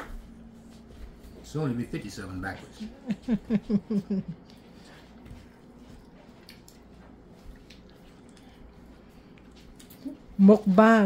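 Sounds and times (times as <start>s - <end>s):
person laughing: 2.8s - 4.6s.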